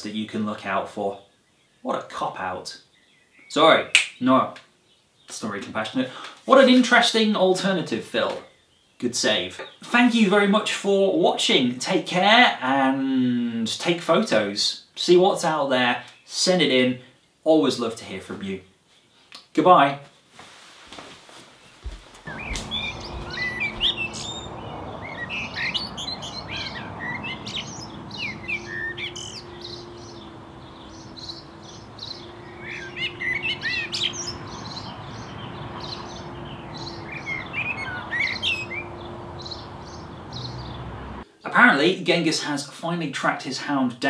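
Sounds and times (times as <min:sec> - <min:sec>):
steady outdoor hiss: 0:00.0 - 0:43.9
birds chirping and singing: 0:21.8 - 0:41.2.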